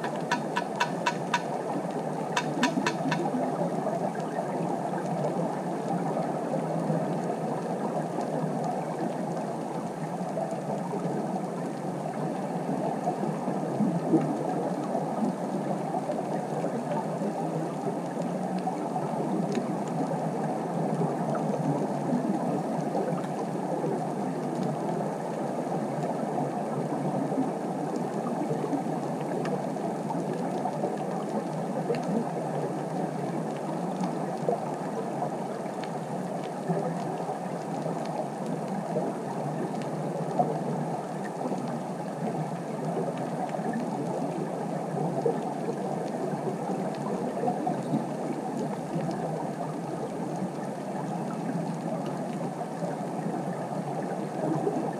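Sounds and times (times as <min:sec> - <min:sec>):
faint clicks: 0:00.0 - 0:03.4.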